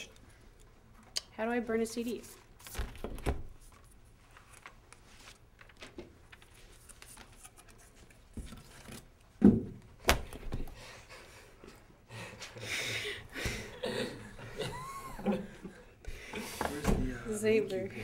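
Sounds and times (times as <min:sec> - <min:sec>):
paper rustle: 0:02.2 - 0:09.1
paper sheets being handled: 0:02.2 - 0:09.1.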